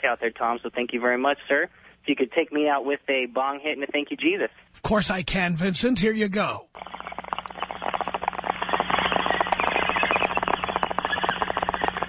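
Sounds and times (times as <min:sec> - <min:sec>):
low hum: 0:06.8 - 0:12.0.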